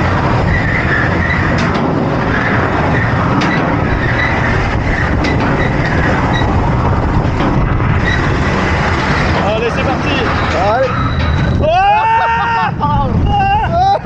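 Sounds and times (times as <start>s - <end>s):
high wheel squeal: 0.0s - 12.8s
roller coaster rumbling on track: 0.0s - 14.0s.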